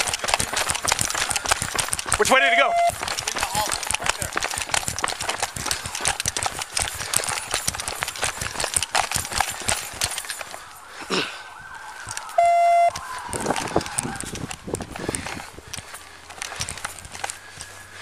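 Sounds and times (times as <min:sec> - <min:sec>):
gear jostling: 0:00.0 - 0:11.2, 0:11.9 - 0:18.0
running footsteps: 0:00.0 - 0:18.0
loud electronic beep: 0:02.2 - 0:03.0, 0:12.3 - 0:13.0
distant siren wailing: 0:02.2 - 0:03.1, 0:09.9 - 0:14.7.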